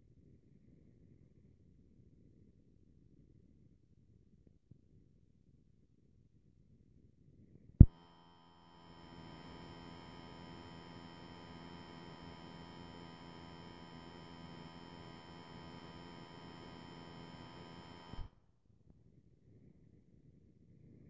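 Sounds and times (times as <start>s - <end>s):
electronic hum of fixed tones: 7.8s - 18.3s
click: 15.6s - 18.3s.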